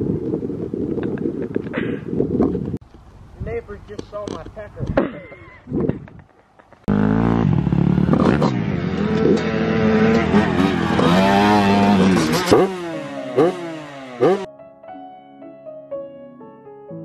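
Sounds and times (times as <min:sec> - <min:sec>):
dirt bike engine revving: 0:06.9 - 0:14.5.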